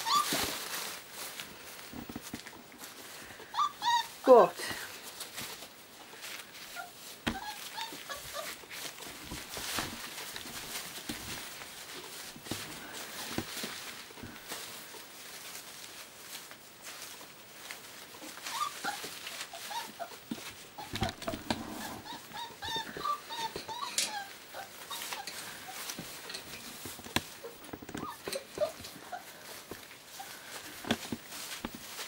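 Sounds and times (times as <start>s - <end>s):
puppies whimpering and squeaking: 0.0s - 1.0s, 3.2s - 4.5s, 6.6s - 13.6s, 18.2s - 30.8s
rustle of shredded newspaper: 0.0s - 32.0s.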